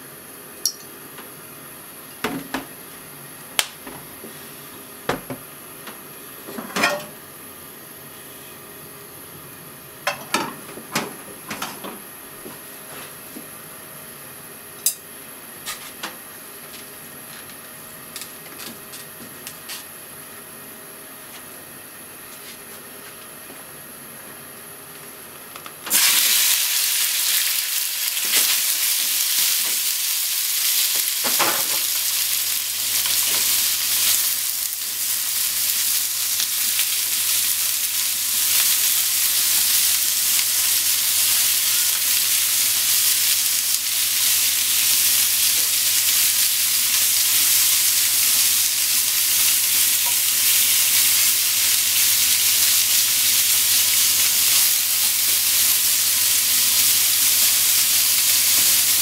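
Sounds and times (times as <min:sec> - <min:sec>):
meat sizzling in hot oil: 0:25.9 - 0:59.0.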